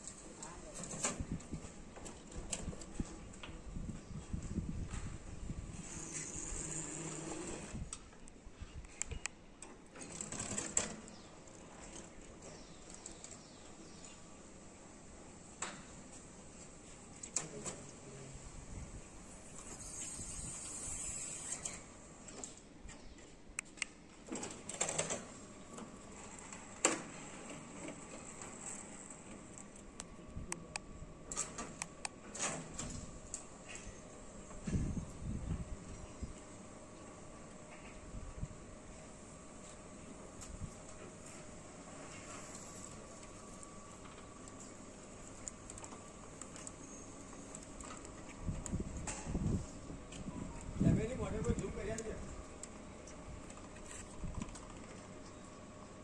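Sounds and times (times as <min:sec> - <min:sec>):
sliding roof motor running: 0:05.7 - 0:08.0, 0:24.3 - 0:30.0.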